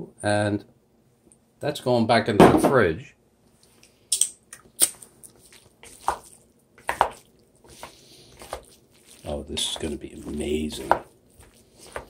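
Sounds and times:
food scraping and squishing: 3.5 - 12.0.

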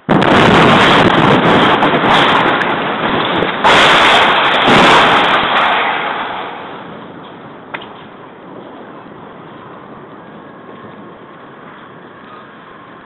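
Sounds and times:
artillery shell explosions: 0.0 - 9.0.

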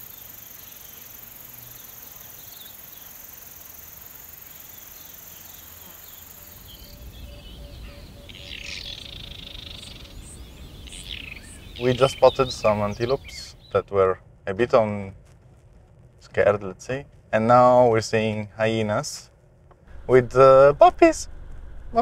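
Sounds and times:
insects trilling: 0.0 - 13.8
small birds chirping: 0.0 - 14.0
loud bird call: 4.9 - 13.8
low rumble: 19.5 - 22.0.

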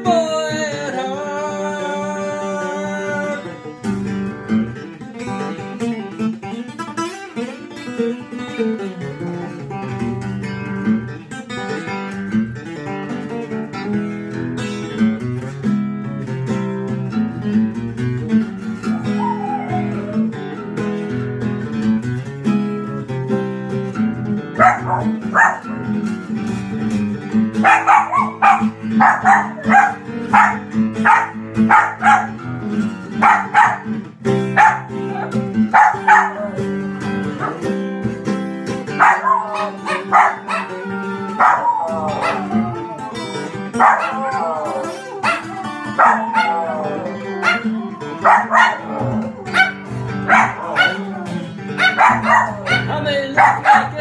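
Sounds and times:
acoustic guitar playing blues: 0.0 - 54.0
dog howling: 18.9 - 20.4, 24.6 - 25.8, 27.6 - 32.4, 33.2 - 33.9, 34.6 - 36.8, 39.0 - 54.0
small dog barking: 19.1 - 20.2, 24.6 - 25.9, 27.6 - 32.4, 33.2 - 34.0, 34.6 - 36.7, 37.4 - 37.7, 39.0 - 42.7, 43.8 - 54.0.

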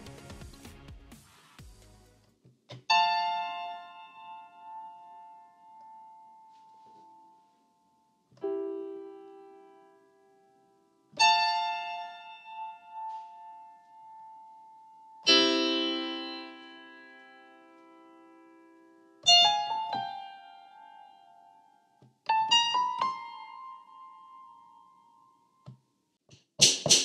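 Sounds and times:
slow piano chords: 2.9 - 25.7.

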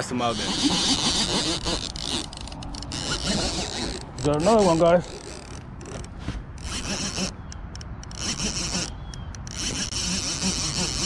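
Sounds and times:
rubbing and scraping on camera: 0.0 - 7.4.

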